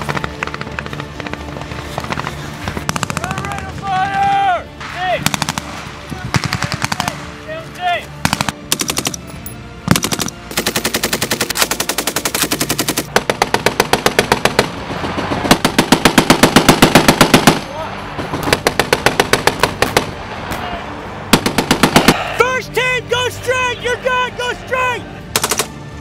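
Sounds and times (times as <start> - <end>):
machine-gun fire: 5.2 - 7.2, 8.2 - 9.1, 9.9 - 17.6, 18.3 - 20.2, 21.3 - 22.2, 25.3 - 25.7.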